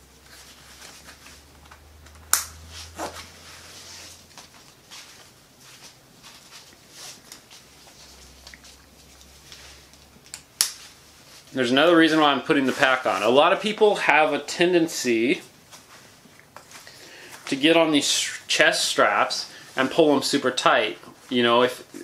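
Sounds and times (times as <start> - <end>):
nylon webbing rustling: 0.0 - 1.8, 2.6 - 17.8.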